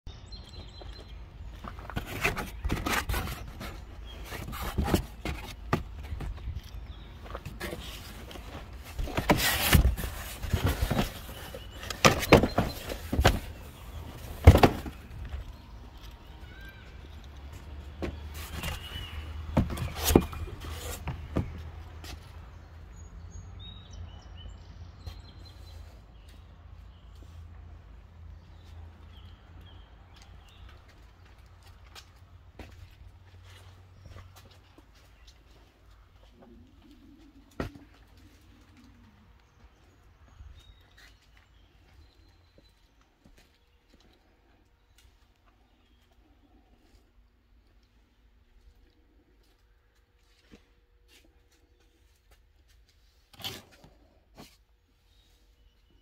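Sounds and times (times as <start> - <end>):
cardboard and plastic packaging handled: 1.4 - 16.2, 17.6 - 21.8
scraping and rustling: 1.6 - 6.6, 7.2 - 15.5.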